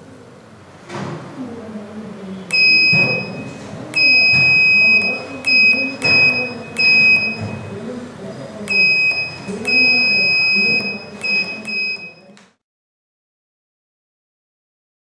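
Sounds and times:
piezo buzzer beeping: 2.5 - 7.8, 8.7 - 12.4.

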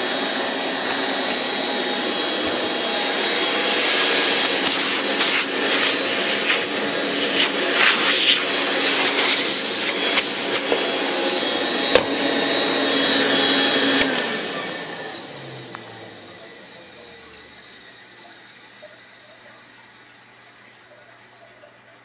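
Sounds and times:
air rushing into vacuum wand: 0.0 - 10.9
vacuum cleaner running: 0.0 - 21.0.

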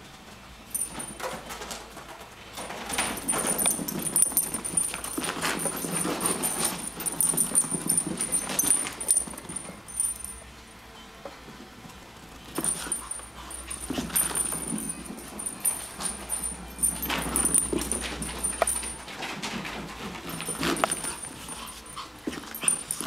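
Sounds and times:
small dogs making excited noises: 2.9 - 10.1, 12.5 - 23.0.

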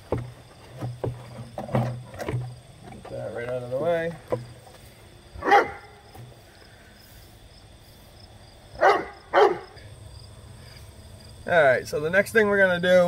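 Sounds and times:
dog barking: 5.4 - 6.0, 8.8 - 9.8.

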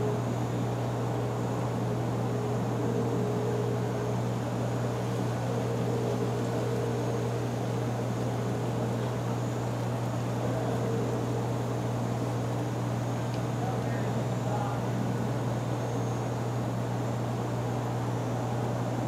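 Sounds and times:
constant hiss: 0.0 - 19.0
low mechanical hum: 0.0 - 19.0.

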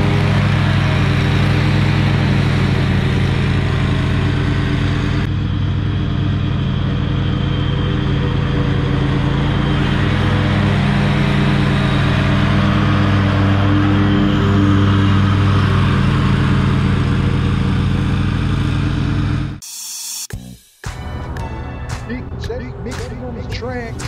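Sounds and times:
lawn mower engine running: 0.0 - 24.0.

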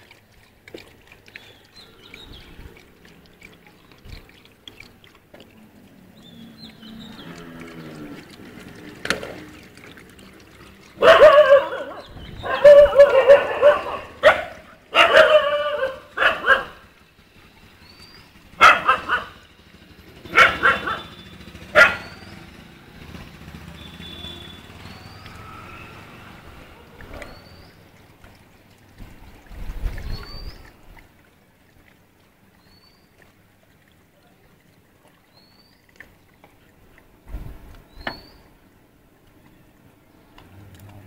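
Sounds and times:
puppies barking: 10.8 - 17.0, 18.5 - 19.5, 20.2 - 22.4.

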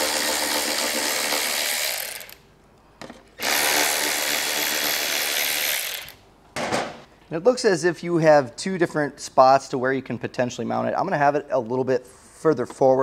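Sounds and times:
electric ratchet whirring: 0.0 - 2.5, 3.4 - 6.2.

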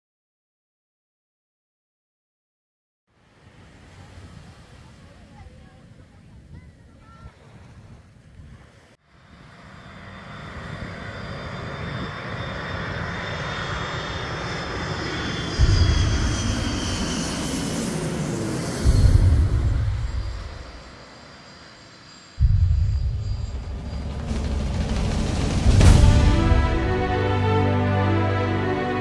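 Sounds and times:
jet airliner passing overhead: 9.1 - 29.0
low rumble bursts: 15.4 - 21.4, 22.4 - 29.0.

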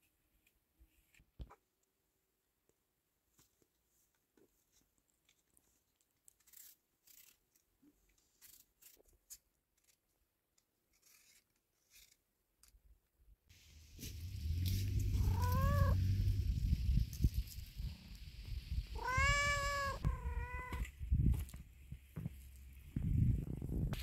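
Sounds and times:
peeler scraping apple skin: 6.3 - 7.6, 10.9 - 12.2
loud low rumble: 13.7 - 20.5
cat meowing: 14.9 - 16.1, 18.9 - 20.9.

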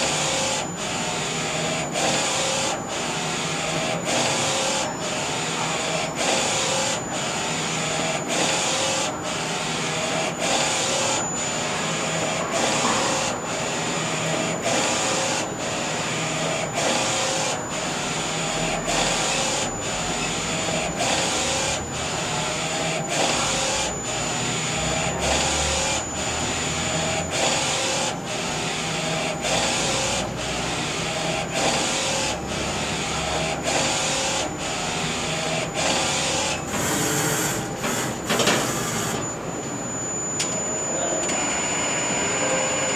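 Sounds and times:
mechanical hum: 0.0 - 42.9
thin high whine: 38.4 - 42.9.

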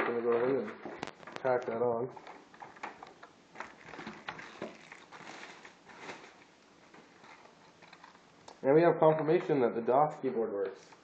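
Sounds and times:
plastic packaging rustling: 0.0 - 8.3.

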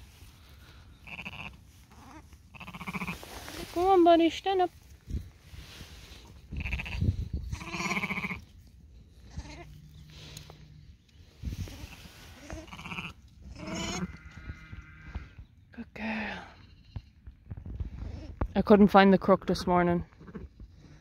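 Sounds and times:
sheep bleating: 1.0 - 3.2, 6.5 - 8.4, 12.0 - 15.1.

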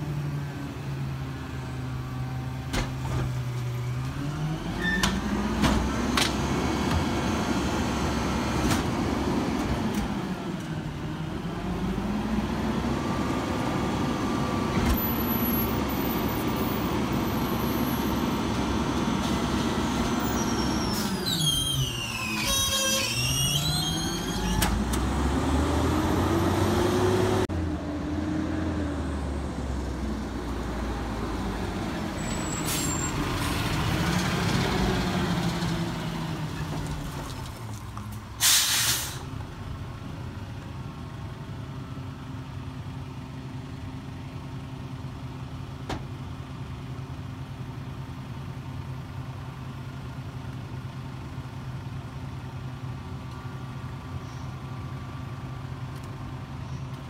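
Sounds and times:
truck engine: 0.0 - 57.0
air brake hiss: 38.4 - 39.3.

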